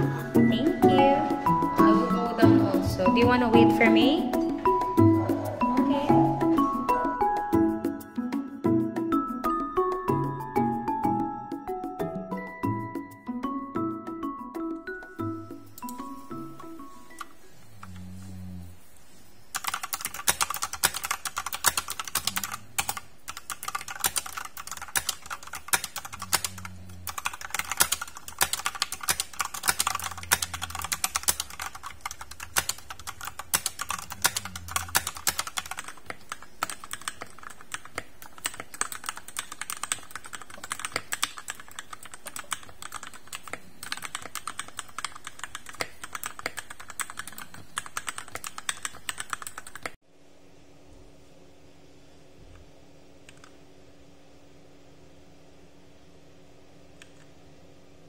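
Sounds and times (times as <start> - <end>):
mechanical keyboard typing: 19.5 - 50.0.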